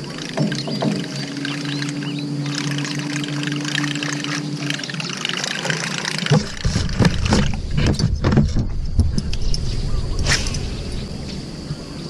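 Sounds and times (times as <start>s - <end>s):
faint high-pitched hum: 0.0s - 12.0s
low rumble: 6.5s - 12.0s
fishing rod whoosh: 9.3s - 11.7s.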